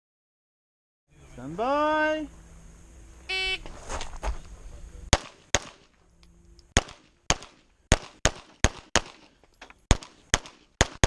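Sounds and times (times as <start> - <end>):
pistol shots with echo: 5.1 - 5.9, 6.8 - 9.3, 9.9 - 11.0.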